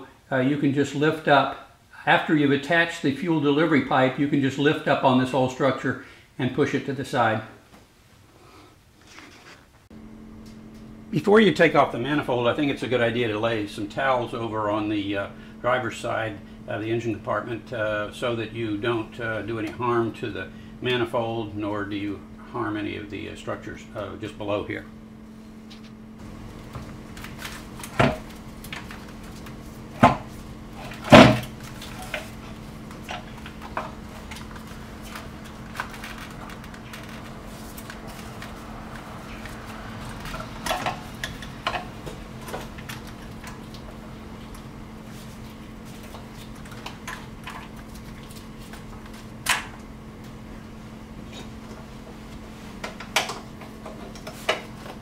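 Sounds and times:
steady low hum: 0:00.0 - 0:55.0
knocks and clunks of engine parts: 0:26.7 - 0:44.0.

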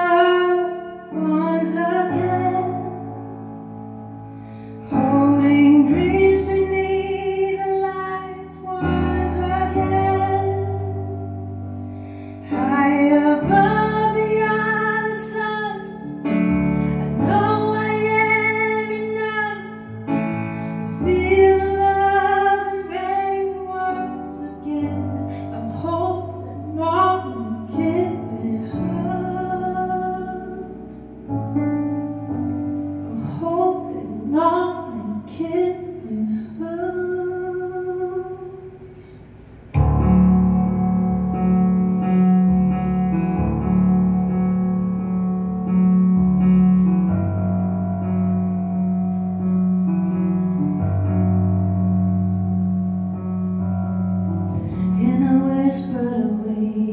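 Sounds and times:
woman singing slow song: 0:00.0 - 0:03.2, 0:04.8 - 0:11.6, 0:12.4 - 0:30.9, 0:33.0 - 0:38.9, 0:54.6 - 0:56.9
sustained keyboard chords: 0:05.0 - 0:56.9.

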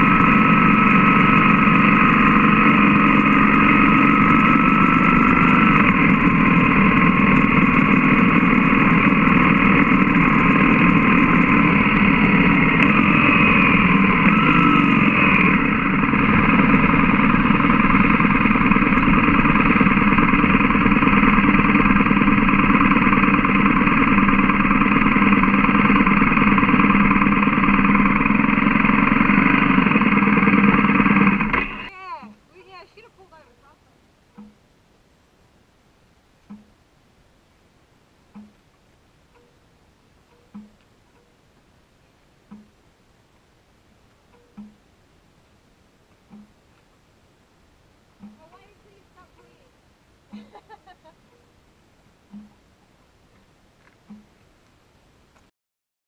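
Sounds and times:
motorcycle engine running: 0:00.0 - 0:32.8, 0:34.3 - 0:34.6, 0:44.3 - 0:44.8, 0:48.2 - 0:51.5, 0:52.3 - 0:52.6, 0:53.3 - 0:54.4.

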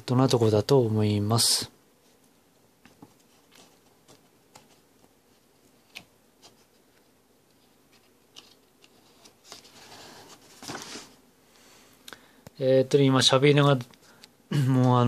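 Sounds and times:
magazine pages rustling: 0:07.6 - 0:11.2.

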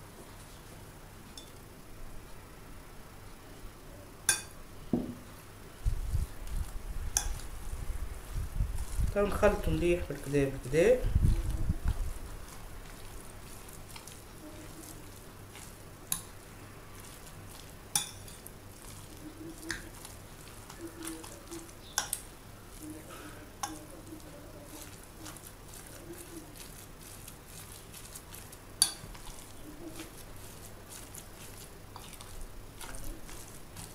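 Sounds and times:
spoon stirring wet meat: 0:00.2 - 0:01.6, 0:05.9 - 0:33.9
spoon clinking on bowl: 0:17.9 - 0:18.4.

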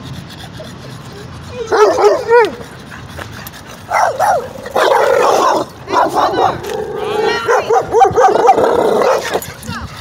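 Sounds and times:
dogs barking and yelping: 0:00.0 - 0:10.0
dog whining: 0:00.6 - 0:02.7.

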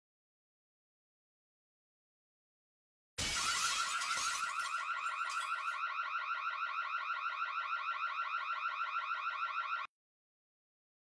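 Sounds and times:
glass shattering: 0:03.2 - 0:05.8
burglar alarm siren: 0:03.2 - 0:09.9.

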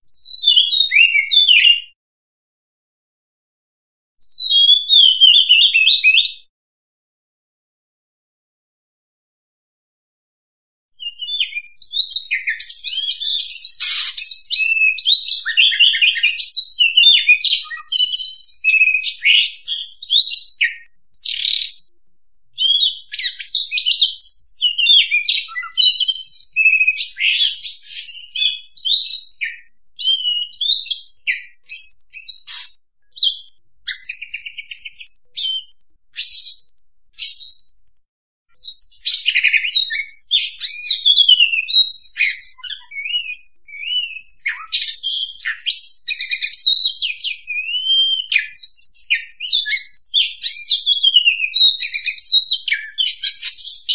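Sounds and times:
songbird singing varied phrases: 0:00.1 - 0:02.0, 0:11.0 - 0:21.9, 0:22.6 - 0:38.0, 0:38.6 - 0:53.9
rapid buzzy bird trill: 0:11.0 - 0:21.8, 0:30.2 - 0:36.6.

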